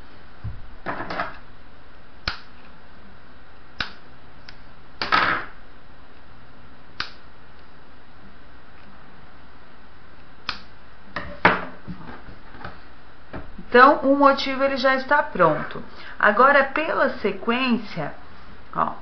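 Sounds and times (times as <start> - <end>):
scissors snipping: 2.2 - 2.5, 3.8 - 4.6, 7.0 - 7.2, 10.4 - 10.7.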